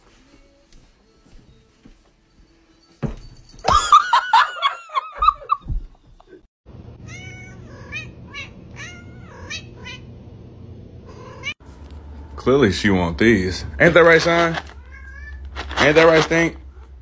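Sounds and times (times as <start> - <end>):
cat meowing: 7.0 - 10.1, 14.7 - 15.5.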